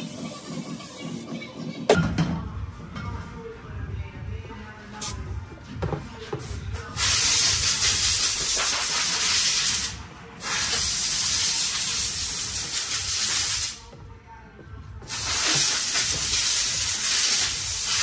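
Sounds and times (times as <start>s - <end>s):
air nozzle hissing: 7.0s - 13.8s, 15.1s - 18.0s.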